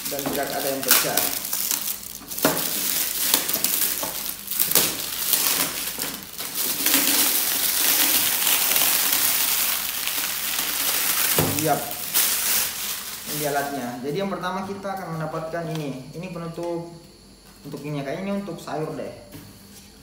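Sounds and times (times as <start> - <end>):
plastic wrap crinkling: 0.0 - 14.0.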